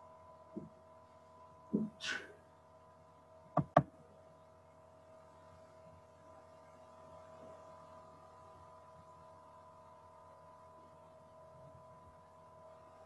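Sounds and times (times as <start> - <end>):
faint electrical hum: 0.0 - 13.0
short breath: 2.0 - 2.4.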